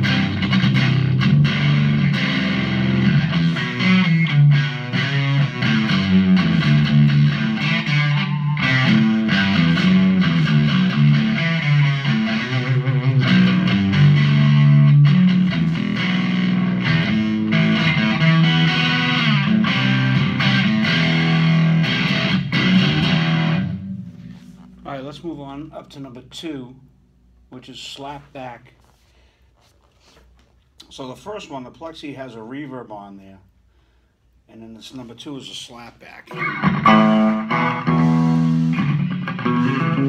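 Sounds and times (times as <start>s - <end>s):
overdriven electric guitar: 0.0s - 24.6s, 36.3s - 40.0s.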